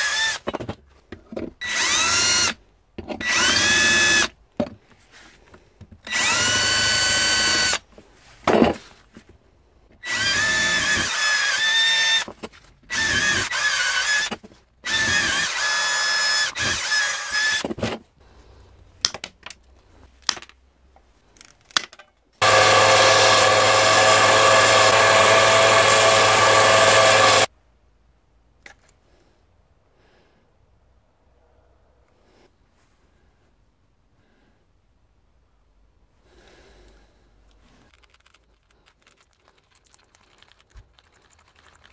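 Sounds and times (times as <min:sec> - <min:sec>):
cordless drill whining: 0:00.0 - 0:00.5, 0:01.6 - 0:02.6, 0:03.2 - 0:04.4, 0:06.0 - 0:07.8, 0:10.0 - 0:12.3, 0:12.9 - 0:17.7, 0:22.4 - 0:27.5.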